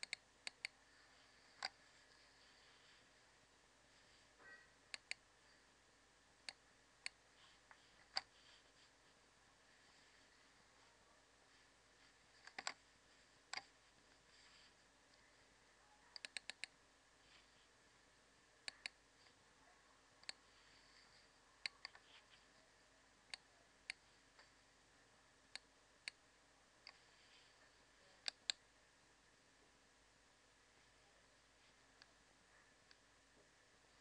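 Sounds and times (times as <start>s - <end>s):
computer mouse clicking: 0.0s - 0.8s, 1.5s - 1.8s, 4.4s - 5.3s, 6.4s - 7.2s, 8.0s - 8.3s, 12.4s - 12.8s, 13.5s - 13.7s, 16.1s - 16.8s, 18.6s - 19.0s, 20.2s - 20.4s, 21.6s - 22.3s, 23.3s - 24.0s, 28.2s - 28.6s.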